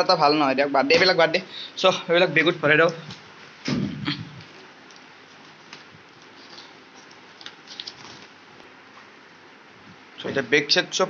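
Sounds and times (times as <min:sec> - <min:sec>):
papers rustling: 0:04.4 - 0:09.2.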